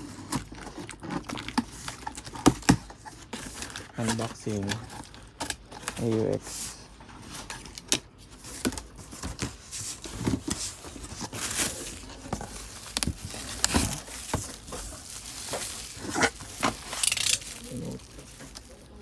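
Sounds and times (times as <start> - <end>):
plastic and bubble wrap crinkling: 0.0 - 19.0
cardboard rubbing: 8.5 - 19.0.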